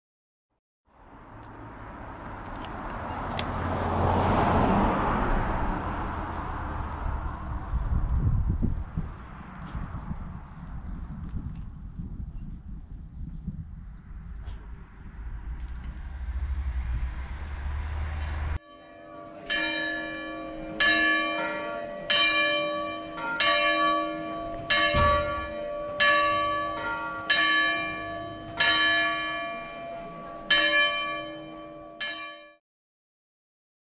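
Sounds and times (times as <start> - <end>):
wind on microphone: 5.2 - 18.6, 24.4 - 25.6
church bell ringing: 18.1 - 32.6.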